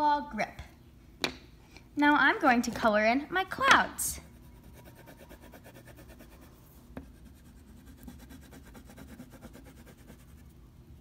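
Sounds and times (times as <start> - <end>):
crayon scratching on paper: 4.3 - 6.5, 7.1 - 10.5.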